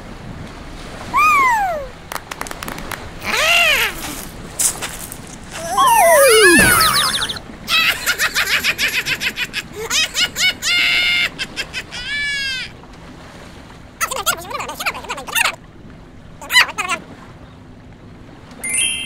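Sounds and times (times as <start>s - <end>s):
gibberish exclamations: 1.2s - 1.9s, 5.6s - 7.4s
squeaky vocal glide: 5.6s - 7.4s
cartoon character chattering laughter: 5.6s - 12.7s.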